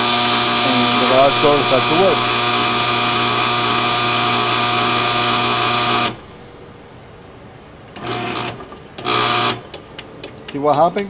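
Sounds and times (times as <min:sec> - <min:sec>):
garage door opener motor humming: 0:00.0 - 0:06.6, 0:07.9 - 0:10.4.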